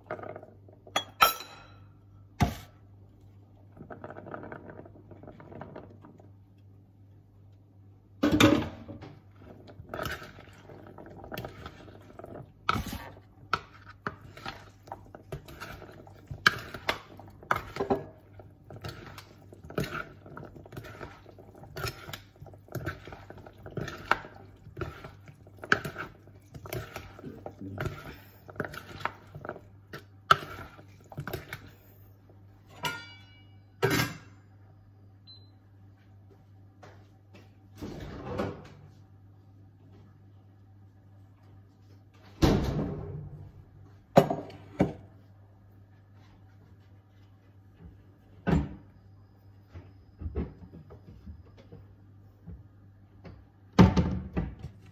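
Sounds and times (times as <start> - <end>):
utensil scraping mixing bowl: 9.4 - 31.8.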